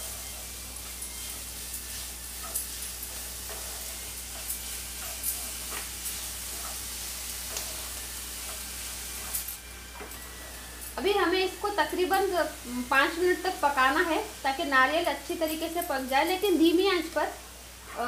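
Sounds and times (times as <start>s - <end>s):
steady sizzle: 0.0s - 18.0s
spatula scraping and tapping pan: 2.4s - 9.4s.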